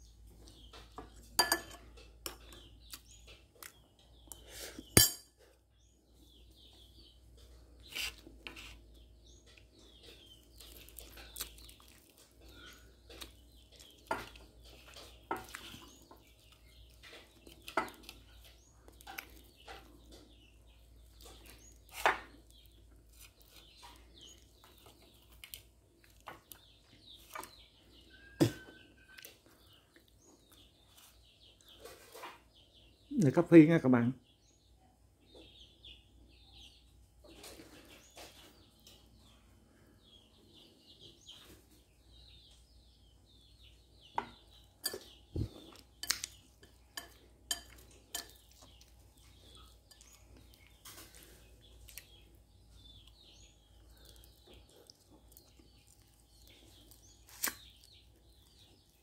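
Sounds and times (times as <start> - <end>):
chopsticks clinking on ceramic bowls: 1.0 - 2.6, 4.9 - 5.4, 44.2 - 45.2, 46.0 - 48.8
faint bird chirps: 26.0 - 59.0.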